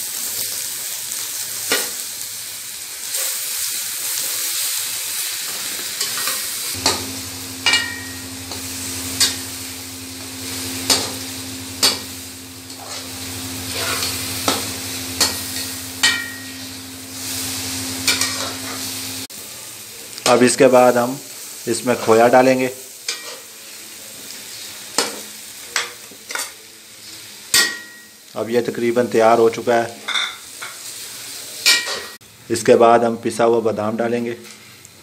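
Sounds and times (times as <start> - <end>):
food sizzling in a pan: 0.0 - 33.1, 34.0 - 35.0
steady low hum: 6.8 - 19.3
spatula stirring and scraping: 10.3 - 16.6.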